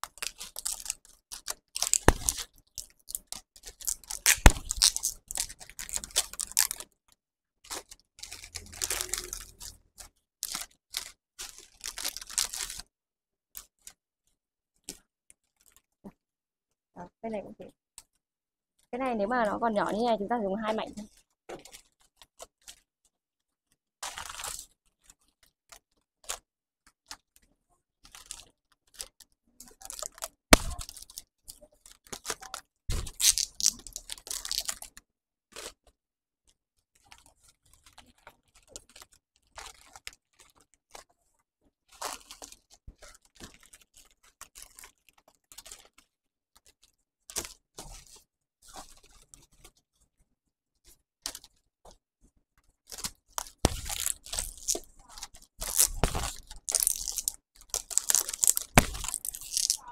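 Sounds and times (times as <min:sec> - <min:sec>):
wrapping paper crinkling: 0:00.0 - 0:07.0, 0:07.6 - 0:12.9, 0:24.0 - 0:26.4, 0:28.0 - 0:35.8, 0:36.9 - 0:41.1, 0:41.9 - 0:50.0, 0:52.7 - 0:59.9.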